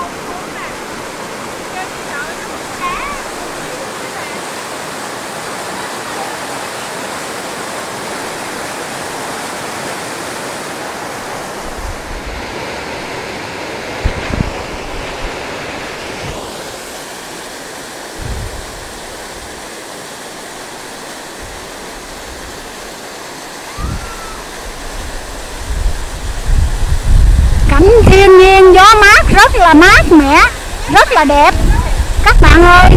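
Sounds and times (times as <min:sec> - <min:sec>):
waterfall and rapids rushing: 0:00.0 - 0:32.9
wind buffeting microphone: 0:14.0 - 0:15.4, 0:18.2 - 0:19.6, 0:23.8 - 0:32.9.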